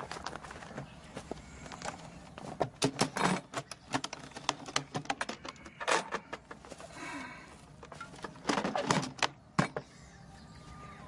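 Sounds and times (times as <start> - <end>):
sharp clicks and knocks: 1.7 - 6.8.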